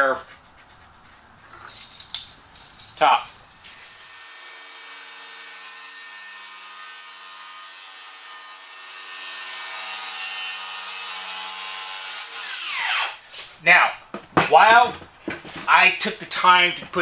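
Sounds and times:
circular saw cutting wood: 0:03.6 - 0:13.2.

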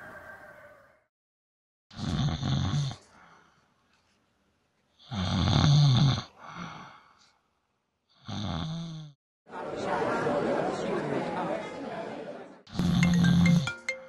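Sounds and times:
man snoring: 0:01.9 - 0:03.0, 0:05.0 - 0:07.0, 0:08.1 - 0:09.2, 0:12.7 - 0:13.6.

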